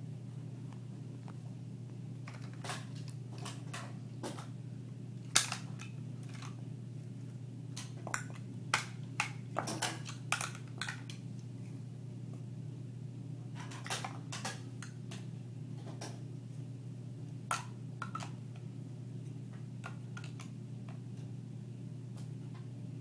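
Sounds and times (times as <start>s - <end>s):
steady low hum: 0.0s - 23.0s
plastic toy blocks clicking: 5.4s - 6.6s.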